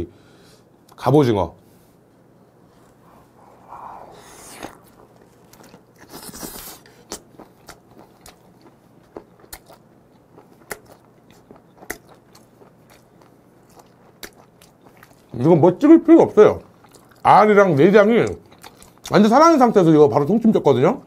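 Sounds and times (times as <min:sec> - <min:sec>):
person biting and chewing: 0:04.2 - 0:15.3.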